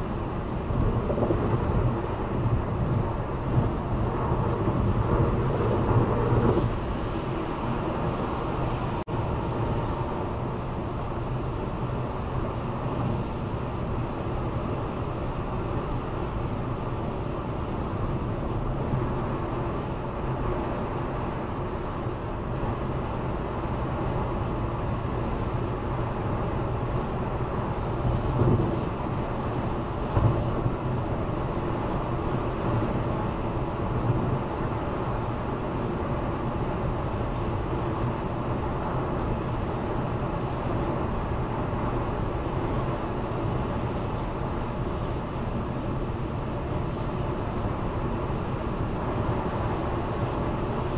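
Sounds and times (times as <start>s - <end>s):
road and tyre noise in car: 0.0s - 50.9s.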